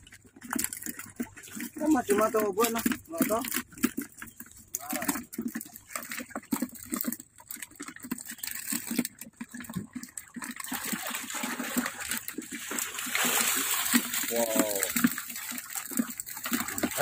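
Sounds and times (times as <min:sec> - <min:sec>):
shallow water sloshing and splashing: 0:00.0 - 0:17.0
rush of water: 0:10.6 - 0:17.0.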